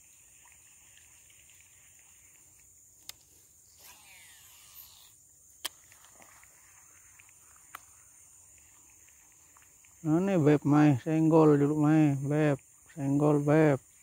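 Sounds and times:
high insect drone: 0:00.0 - 0:14.0
reel whir falling in pitch: 0:03.7 - 0:05.2.

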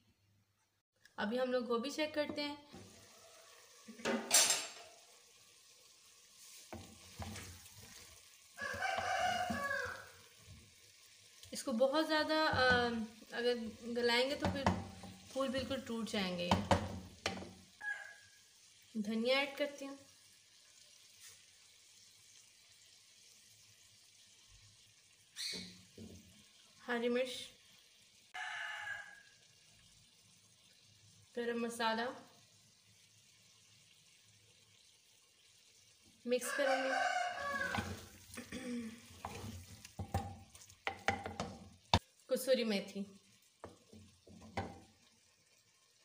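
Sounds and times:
ladle knocking and stirring in pot: 0:06.7 - 0:08.0, 0:12.4 - 0:13.1, 0:14.2 - 0:17.6, 0:37.6 - 0:38.2, 0:39.2 - 0:42.0, 0:43.6 - 0:44.9
ladle scraping pot: 0:37.5 - 0:38.4, 0:39.1 - 0:41.6.

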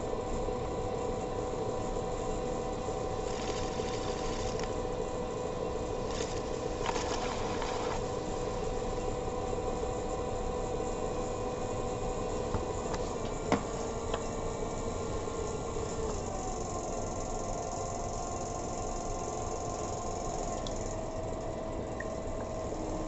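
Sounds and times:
pottery wheel motor humming: 0:00.0 - 0:23.0
tool scraping spinning clay: 0:03.2 - 0:04.8, 0:06.0 - 0:08.6.

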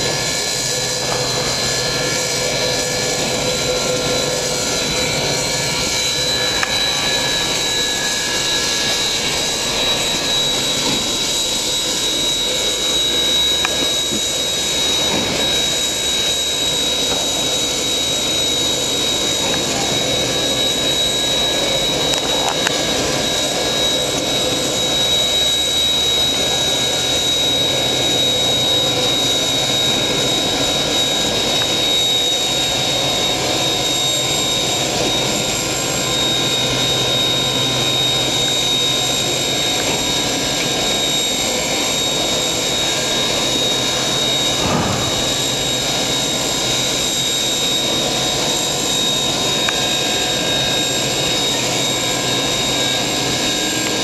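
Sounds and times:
high whine: 0:00.0 - 0:54.0
steam locomotive hissing roar: 0:00.0 - 0:54.0.

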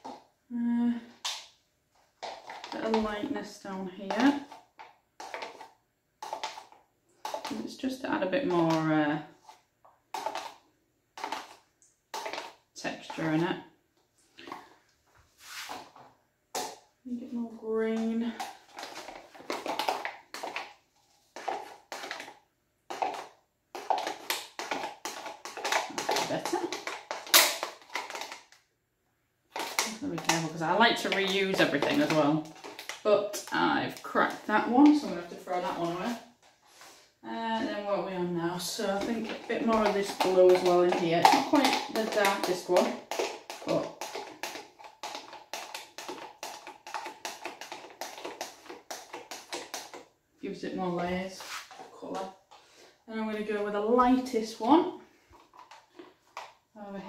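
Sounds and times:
plastic cup crackling and crunching: 0:02.2 - 0:13.5, 0:17.9 - 0:28.6, 0:29.5 - 0:36.4, 0:38.6 - 0:50.2, 0:55.2 - 0:56.7.

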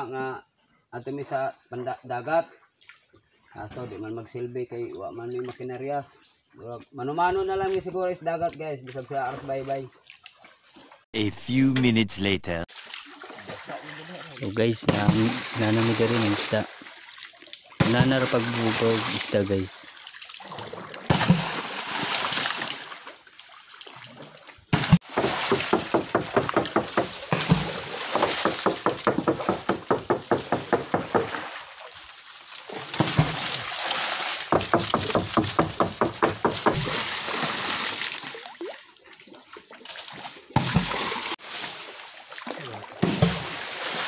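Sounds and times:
paddle splashing water: 0:08.4 - 0:11.0, 0:12.7 - 0:44.0.

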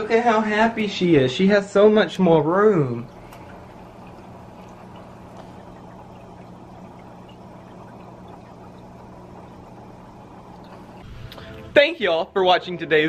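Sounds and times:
aquarium filter humming: 0:00.0 - 0:13.0
water trickling and bubbling: 0:02.3 - 0:11.7.

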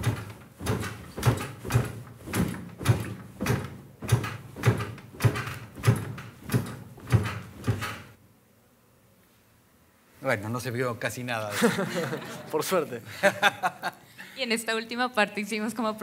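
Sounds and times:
bed springs creaking: 0:00.0 - 0:08.2.

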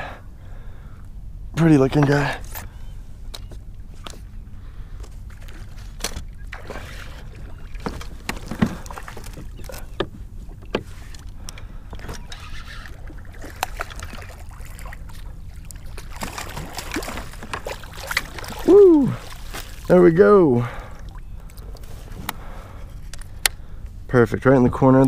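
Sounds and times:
low steady rumble: 0:00.0 - 0:25.0
fishing gear knocks and clicks: 0:07.8 - 0:12.5, 0:16.0 - 0:18.6.

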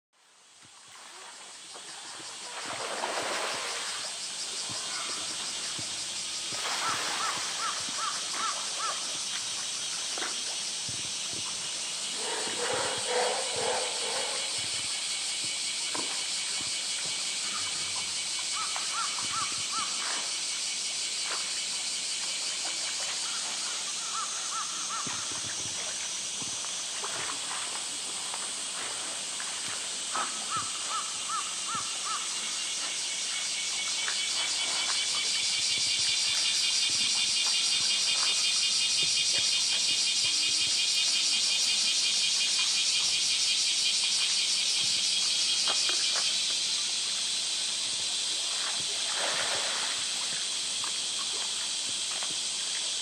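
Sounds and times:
water splashing: 0:00.9 - 0:05.9, 0:06.5 - 0:10.6, 0:48.3 - 0:53.0
steady high hiss: 0:01.4 - 0:53.0.

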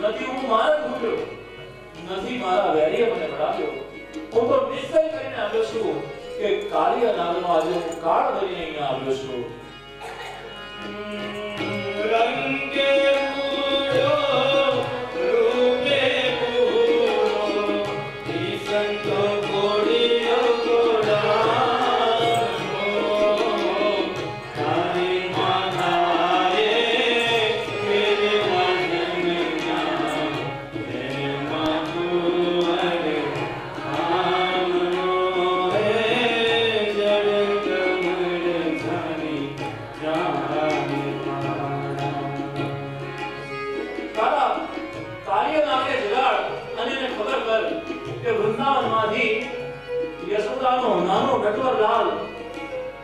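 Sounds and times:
harmonium: 0:00.0 - 0:53.0
man singing: 0:10.9 - 0:42.7.

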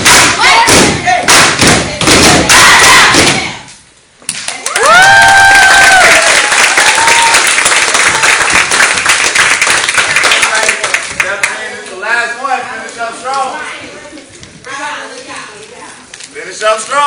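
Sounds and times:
stomping and clapping in unison: 0:00.0 - 0:03.6, 0:04.3 - 0:11.5
crowd clapping and cheering: 0:04.4 - 0:11.6.

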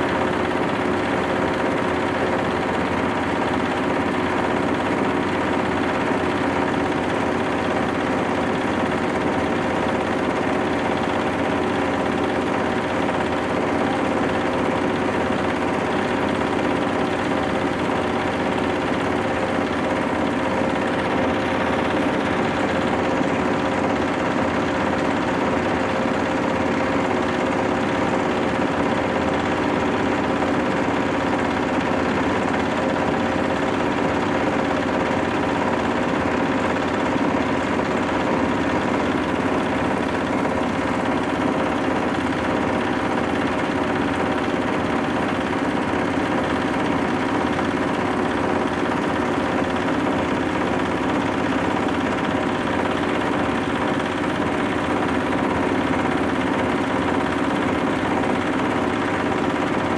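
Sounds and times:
grinding mill running: 0:00.0 - 0:59.9.

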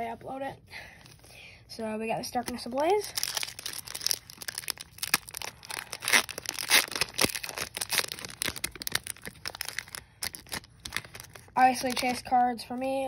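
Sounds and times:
foil wrapper crinkling and tearing: 0:02.4 - 0:12.4.

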